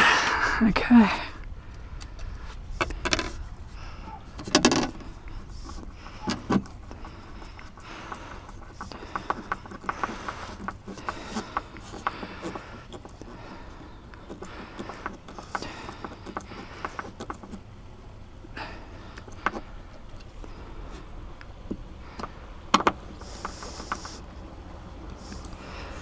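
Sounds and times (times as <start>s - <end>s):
screwdriver scraping and clicking: 2.1s - 3.4s, 4.3s - 17.6s, 19.1s - 20.4s, 22.1s - 24.2s.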